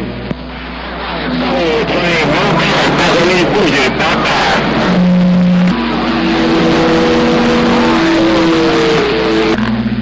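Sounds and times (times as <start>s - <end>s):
radio static hiss: 0.4s - 9.6s
whistling heterodyne tones: 4.2s - 9.6s.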